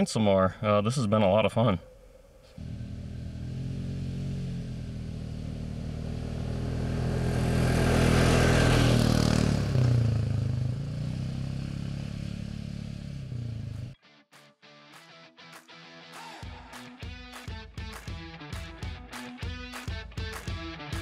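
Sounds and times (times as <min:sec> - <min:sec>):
atv engine driving past: 0:02.4 - 0:14.0.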